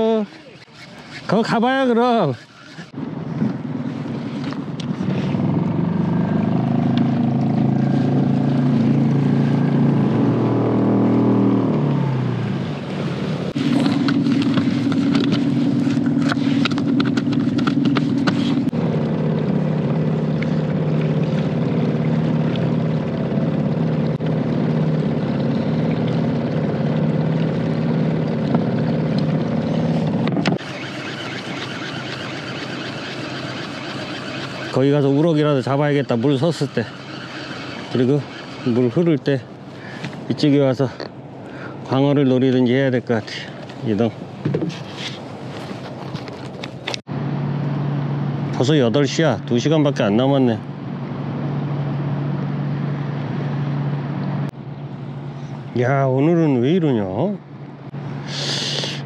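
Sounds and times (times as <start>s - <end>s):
small motor humming: 0.0s - 3.0s, 29.2s - 39.1s.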